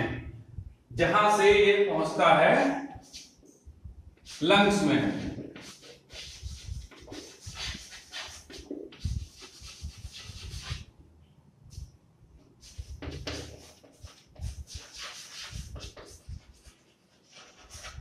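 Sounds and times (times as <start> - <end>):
chalk scratching on blackboard: 3.0 - 3.5, 4.3 - 10.9, 12.6 - 18.0.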